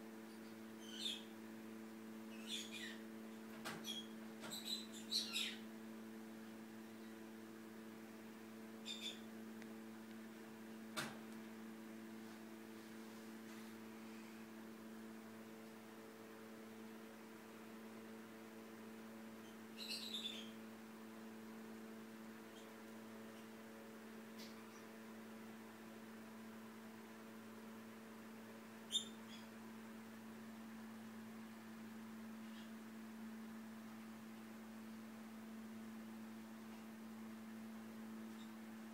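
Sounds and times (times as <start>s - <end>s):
faint steady hum: 0.0s - 38.9s
high chirping squeaks: 2.3s - 3.0s, 3.8s - 5.6s, 8.8s - 9.3s.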